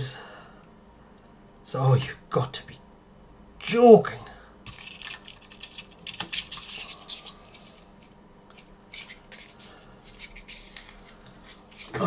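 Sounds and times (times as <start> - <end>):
card of chips rustling: 4.7 - 12.0.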